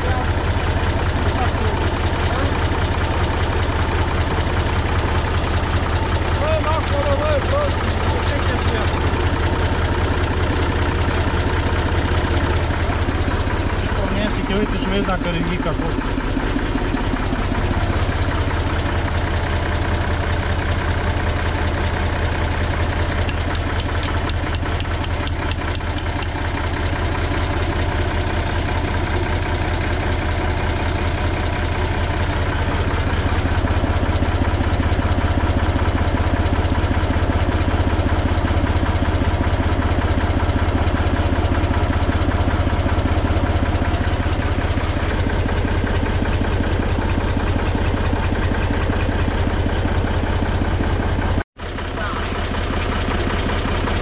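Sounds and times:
engine idling: 0.0s - 54.0s.

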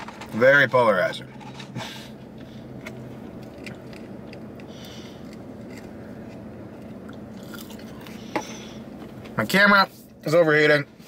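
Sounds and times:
steady low hum: 0.0s - 11.0s
person chewing food: 2.2s - 9.2s.

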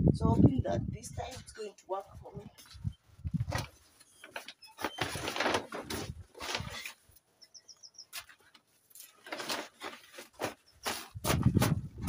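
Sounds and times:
plastic sheeting rustling: 3.3s - 7.1s, 8.2s - 11.8s
bird chirping: 7.4s - 8.2s.

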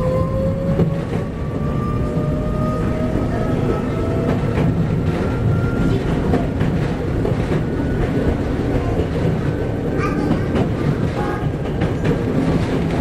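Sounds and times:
train rumble: 0.0s - 13.0s
wheels clicking over rail joints: 3.2s - 13.0s.

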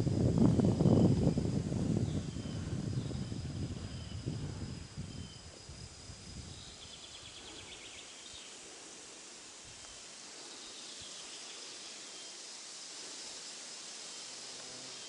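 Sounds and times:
wind buffeting microphone: 0.0s - 7.1s
high insect buzz: 0.0s - 15.0s.

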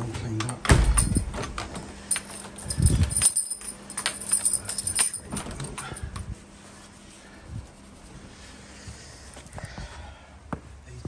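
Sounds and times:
door lock clicks and knocks: 0.4s - 1.8s
keys jangling: 0.6s - 6.3s.

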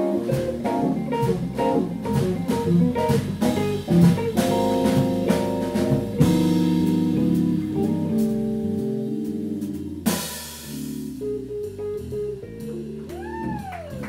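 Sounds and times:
sharp drum hit: 0.0s - 8.4s
jazz combo playing: 0.0s - 14.0s.

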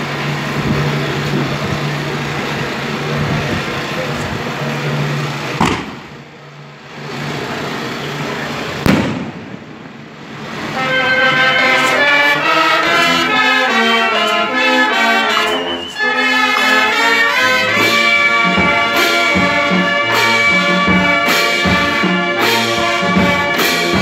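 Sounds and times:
crowd noise: 0.0s - 24.0s
engine hum: 0.0s - 24.0s
firecracker bangs: 5.6s - 6.2s, 8.8s - 10.1s.

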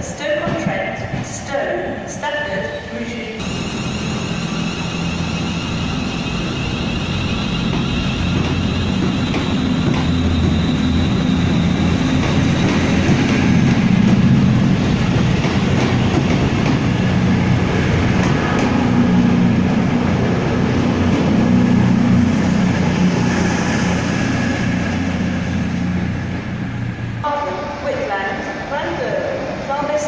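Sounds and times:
rumble of moving train: 0.0s - 30.0s
diesel engines droning: 3.4s - 28.3s.

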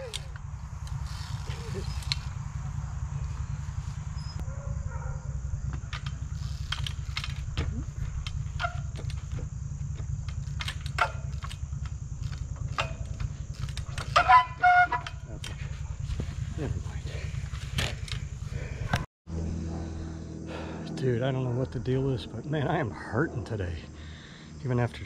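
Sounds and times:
rim brake squeal: 0.0s - 4.4s, 8.4s - 9.5s, 12.6s - 15.8s
bike bouncing clicks and knocks: 0.0s - 19.0s
steady low rumble: 0.0s - 25.0s.

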